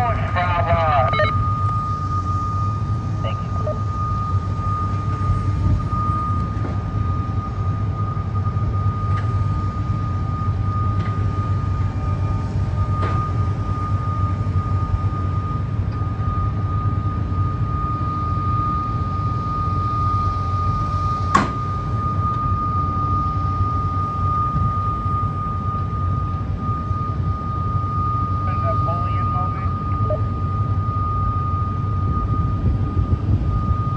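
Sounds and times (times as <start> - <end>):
excavator diesel engine running: 0.0 - 33.9
high-pitched whine: 0.0 - 33.9
sharp knock: 21.4 - 21.6.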